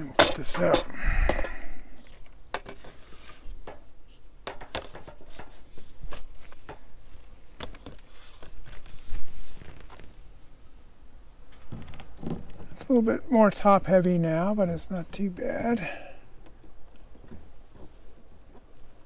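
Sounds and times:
handling clicks and knocks: 0.0s - 3.0s, 3.6s - 8.8s
clothing rustle: 5.1s - 13.0s.

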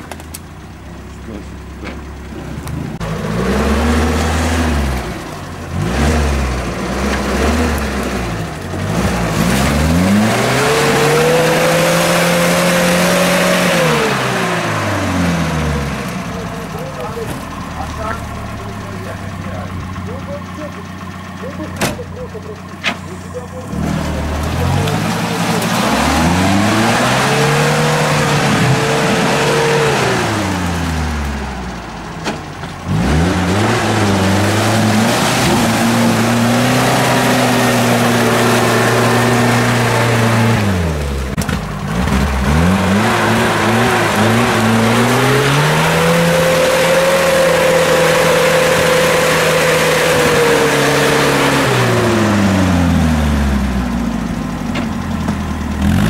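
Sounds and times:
engine revving hard: 2.6s - 32.1s, 32.8s - 54.3s, 55.8s - 56.0s
wheels spinning through mud: 21.4s - 54.0s.

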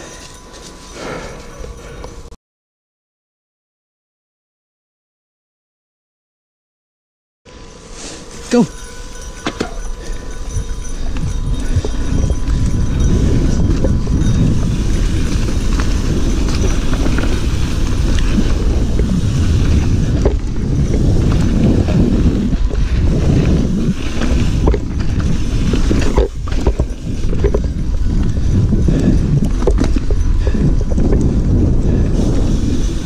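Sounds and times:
bike tyres on dirt trail: 0.0s - 2.3s, 7.5s - 33.0s
bike rattling and knocking: 9.0s - 33.0s
wind buffeting microphone: 9.0s - 33.0s.

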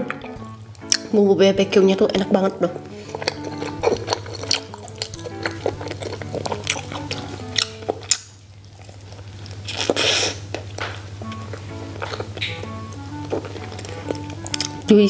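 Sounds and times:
plucked melody music: 0.0s - 8.2s, 11.2s - 15.0s
biting into soft bun: 2.8s - 14.9s.

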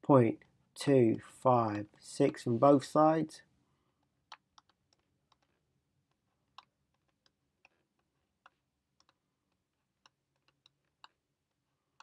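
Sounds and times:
stylus tapping on tablet screen: 3.9s - 12.0s.

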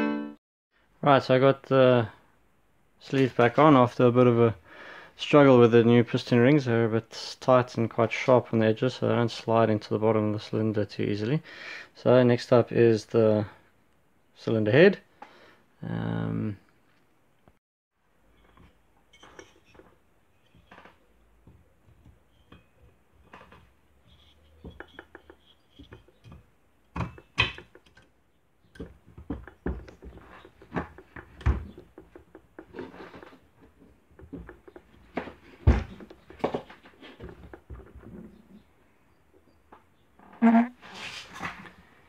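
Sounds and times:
metal engine parts clinking: 18.3s - 20.7s, 24.0s - 28.1s.

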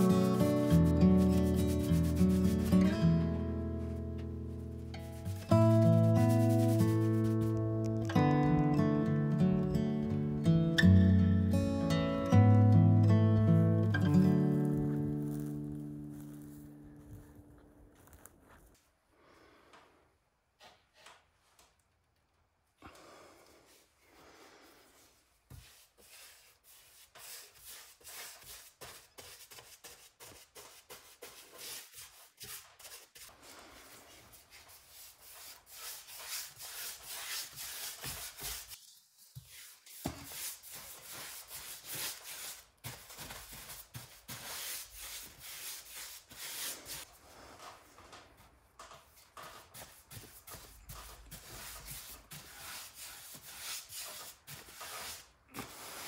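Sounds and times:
bristle brush scrubbing on wood: 0.0s - 3.0s, 5.0s - 7.6s, 25.5s - 47.1s, 49.8s - 56.0s.

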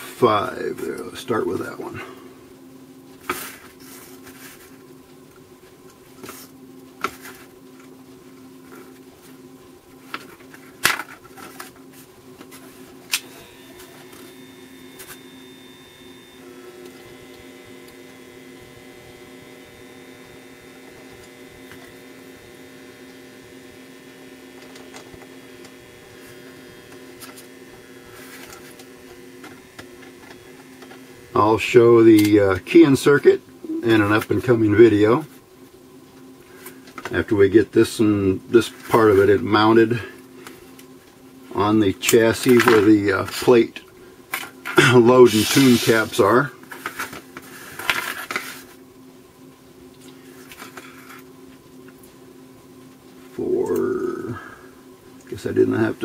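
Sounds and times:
steady electrical hum: 0.0s - 56.0s
soldering gun buzz: 12.6s - 34.3s, 44.7s - 46.5s.

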